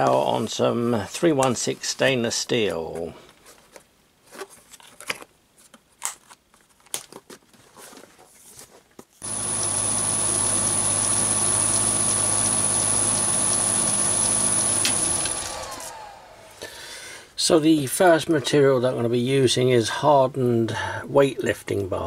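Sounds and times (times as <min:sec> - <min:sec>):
mini lathe running with whine: 0:09.2 - 0:16.6.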